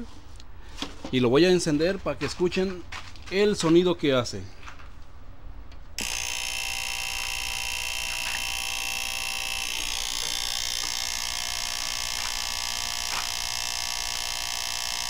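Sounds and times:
loud steady electrical buzz: 0:06.0 - 0:15.0.

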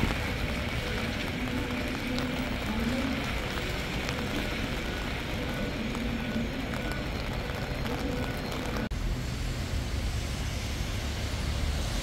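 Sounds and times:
raindrop ticks: 0:00.0 - 0:08.9
low city rumble: 0:00.0 - 0:12.0
steady rain: 0:00.0 - 0:12.0.

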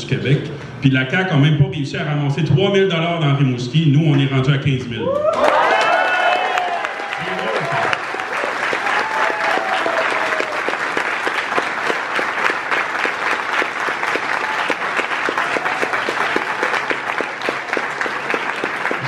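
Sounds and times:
audience applauding: 0:05.2 - 0:19.0.

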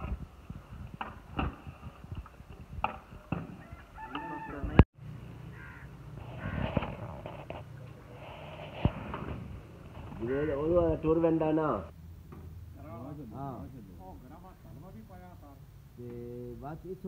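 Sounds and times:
rooster crowing: 0:03.5 - 0:04.8.

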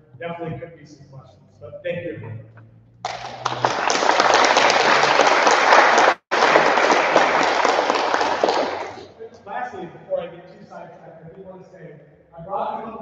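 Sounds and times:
audience applauding: 0:03.0 - 0:09.2.

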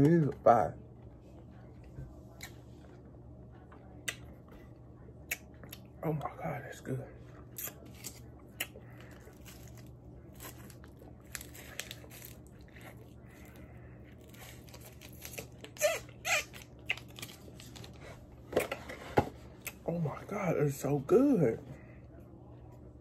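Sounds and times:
mouth crunching frozen pop: 0:14.3 - 0:17.4.

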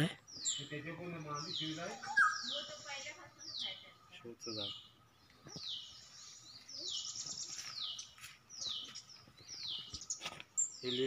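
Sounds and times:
bird calling with descending note: 0:01.4 - 0:03.9.

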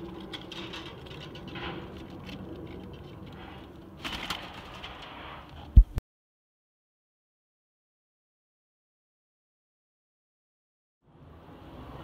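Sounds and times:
small clicks and rustles: 0:00.0 - 0:05.7.

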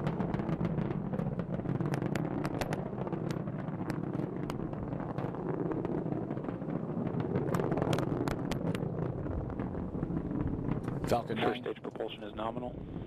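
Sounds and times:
rocket engines rumbling: 0:00.0 - 0:13.0
sharp crackles: 0:00.0 - 0:13.0.

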